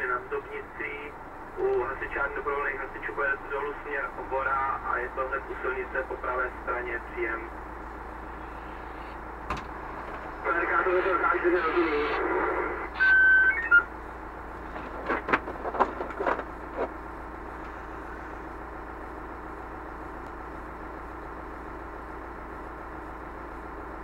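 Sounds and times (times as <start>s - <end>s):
fire engine idling: 0.0s - 24.0s
radio beep: 10.4s - 14.0s.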